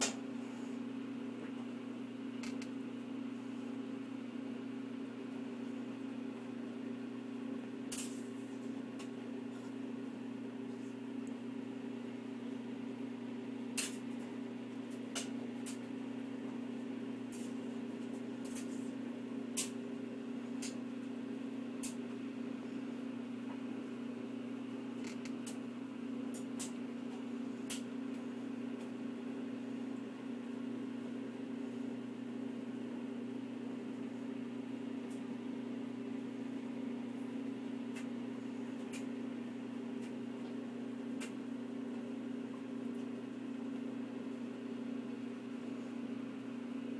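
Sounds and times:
low mechanical hum: 0.0s - 46.9s.

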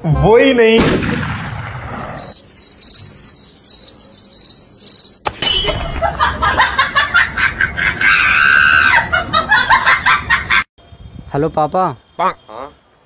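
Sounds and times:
crickets chirping: 1.9s - 7.6s, 9.3s - 13.0s.

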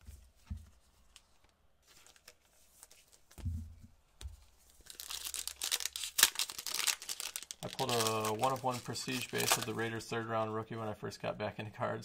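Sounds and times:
light crinkles of card packs: 0.2s - 3.5s, 4.2s - 10.3s.

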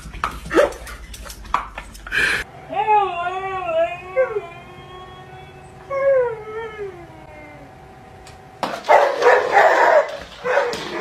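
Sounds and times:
dog howling: 2.7s - 7.8s.

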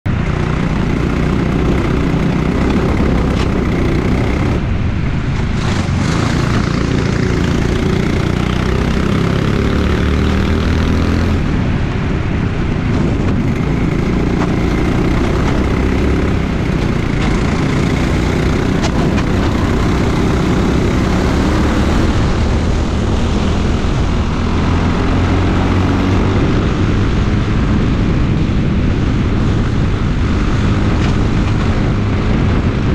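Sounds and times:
go-kart engine revving: 0.2s - 4.8s, 5.5s - 11.6s, 12.9s - 28.1s.

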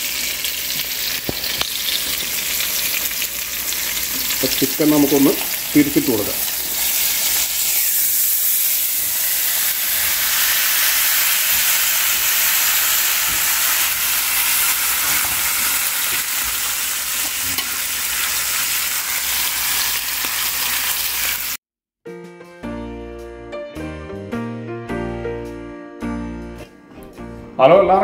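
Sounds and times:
chicken sizzling in a frying pan: 0.0s - 21.6s
music: 22.0s - 28.0s.

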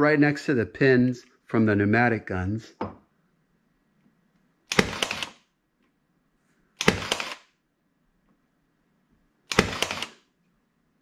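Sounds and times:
pin nailer firing into wood: 4.7s - 5.4s, 6.8s - 7.5s, 9.5s - 10.2s.

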